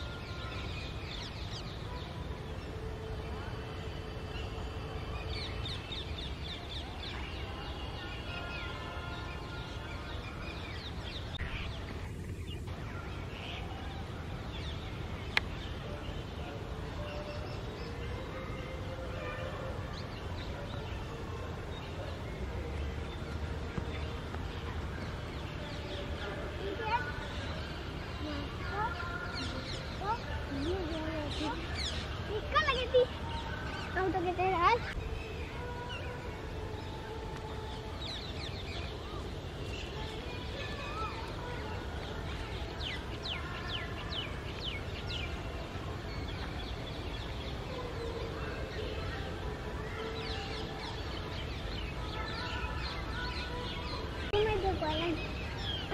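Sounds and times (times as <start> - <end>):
small birds chirping: 17.0 - 55.9.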